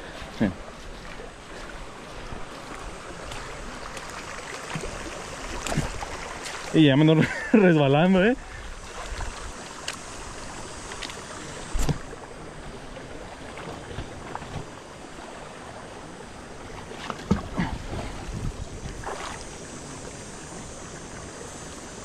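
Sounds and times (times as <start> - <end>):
river rushing: 0.0 - 22.0
water splashing from wading: 0.0 - 22.0.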